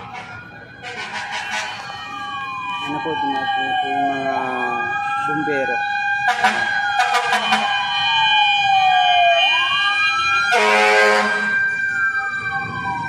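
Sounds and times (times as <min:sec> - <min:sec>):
horn blasts: 0:00.0 - 0:01.8, 0:06.3 - 0:07.7, 0:10.5 - 0:11.6
fire truck siren wailing: 0:00.0 - 0:13.0.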